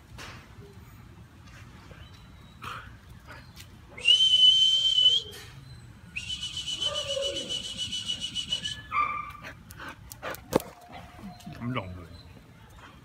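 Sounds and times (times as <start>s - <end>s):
high-pitched whistle blasts: 4.0s - 5.6s, 6.2s - 9.0s.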